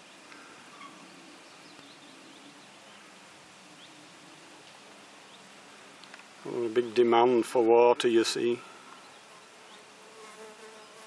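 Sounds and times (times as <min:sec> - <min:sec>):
distant bird chirps: 0:00.0 - 0:04.2, 0:08.6 - 0:09.9
countryside ambience: 0:00.0 - 0:11.0.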